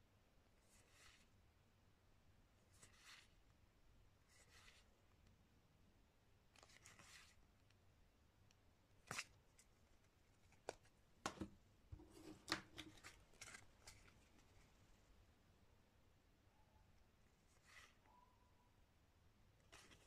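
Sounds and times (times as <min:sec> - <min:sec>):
cards sliding: 0:10.4 - 0:14.5.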